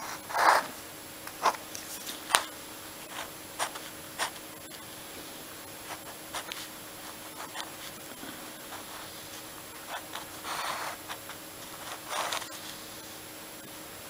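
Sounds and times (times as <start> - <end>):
pen scratching on paper: 0.0 - 0.8, 2.2 - 4.7, 5.8 - 12.9.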